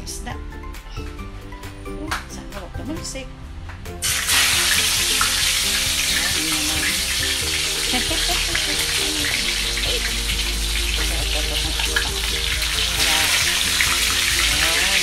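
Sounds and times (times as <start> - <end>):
fish frying in oil: 4.0 - 15.0.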